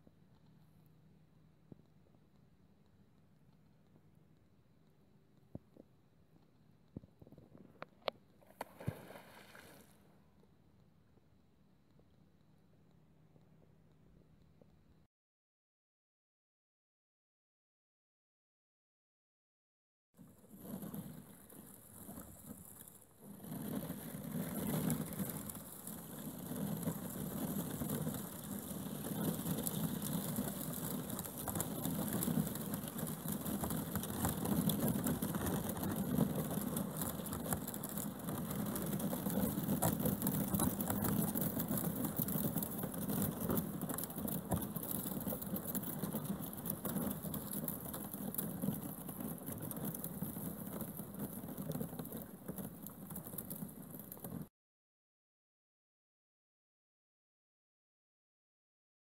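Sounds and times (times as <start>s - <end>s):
ice crackling against kayak hull: 5.4s - 11.3s, 20.2s - 54.5s.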